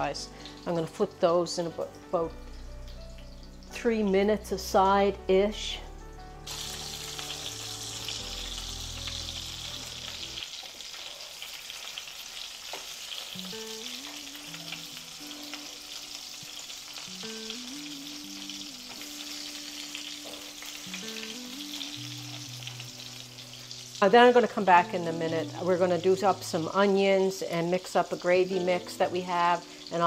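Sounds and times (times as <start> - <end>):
meat patties sizzling in oil: 6.4 - 30.0.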